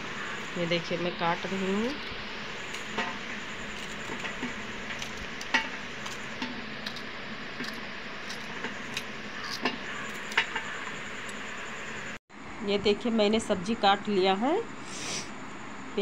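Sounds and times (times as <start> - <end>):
steady hiss: 14.7 - 15.4.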